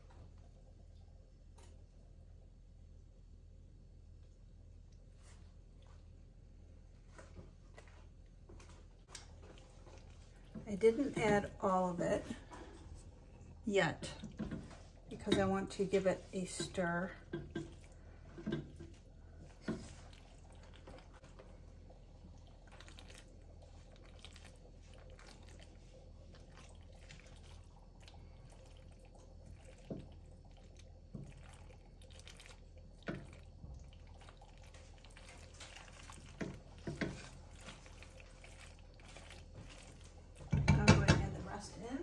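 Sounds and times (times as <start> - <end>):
spatula stirring thick sauce: 9.1 - 41.9.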